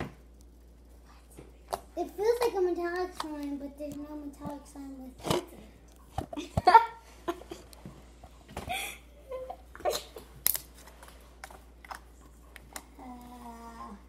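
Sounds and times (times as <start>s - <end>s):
person giggling: 8.6s - 10.3s.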